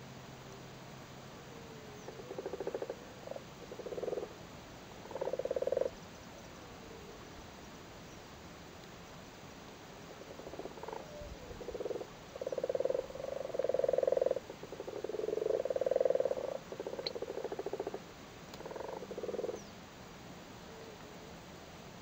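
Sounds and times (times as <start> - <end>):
frogs croaking in pulses: 2.0 - 4.4, 5.0 - 6.1, 10.0 - 19.7.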